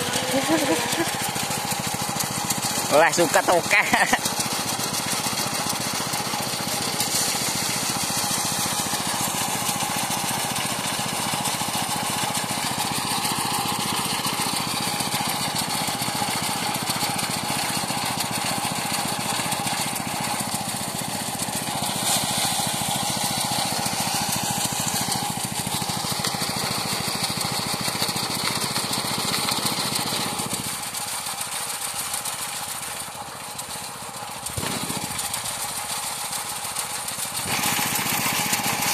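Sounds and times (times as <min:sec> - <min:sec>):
threshing machine running: 0:00.0 - 0:38.9.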